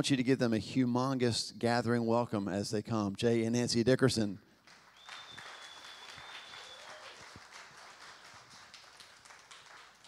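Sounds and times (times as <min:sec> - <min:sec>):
crowd clapping: 0:04.6 - 0:10.0
long high whistle: 0:04.9 - 0:07.3.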